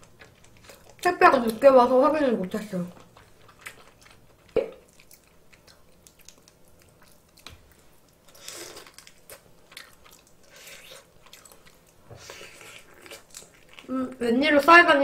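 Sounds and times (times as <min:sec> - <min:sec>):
person chewing: 0:00.0 - 0:01.7, 0:02.6 - 0:14.2.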